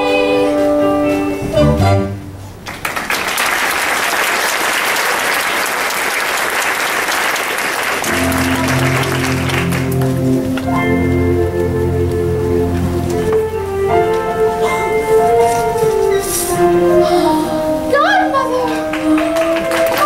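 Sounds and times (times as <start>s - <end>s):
instrumental music low notes: 0.0s - 2.4s, 8.1s - 20.0s
audience applauding: 2.6s - 10.8s, 18.7s - 20.0s.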